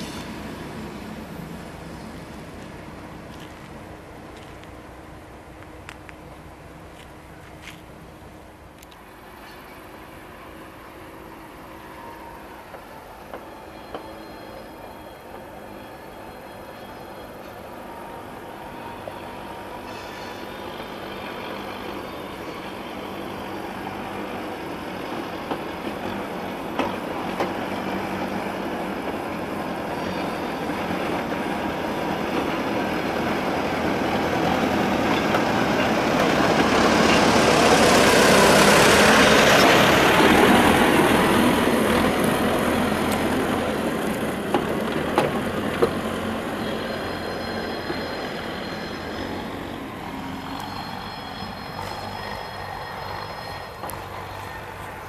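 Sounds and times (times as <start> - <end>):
diesel locomotive engine: 0.0 - 55.0
freight wagons rumbling: 19.9 - 55.0
wheels and wagons clanking: 29.9 - 55.0.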